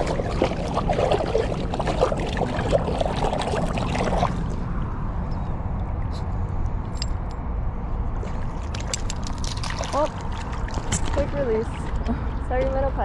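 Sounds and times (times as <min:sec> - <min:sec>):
river water splashing and trickling: 0:00.0 - 0:07.3, 0:08.0 - 0:13.0
steady low rumble: 0:00.0 - 0:13.0.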